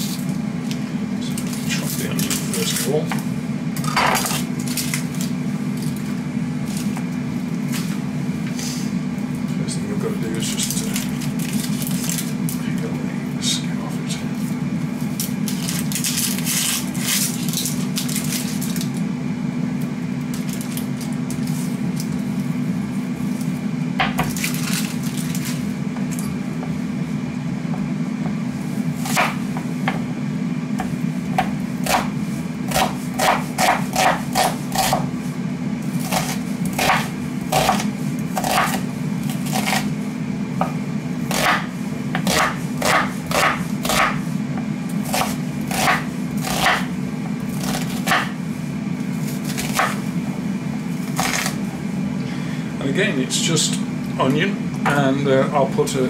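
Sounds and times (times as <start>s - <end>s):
air fryer fan humming: 0.0s - 56.0s
knife chopping on wooden board: 24.0s - 24.4s, 29.0s - 30.1s, 30.8s - 35.1s, 36.0s - 39.9s, 40.6s - 46.9s, 47.6s - 48.4s, 49.3s - 50.0s.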